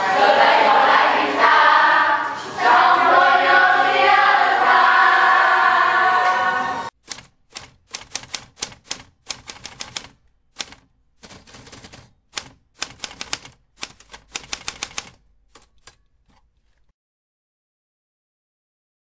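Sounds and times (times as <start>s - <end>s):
typewriter key clacks: 7.0s - 16.9s.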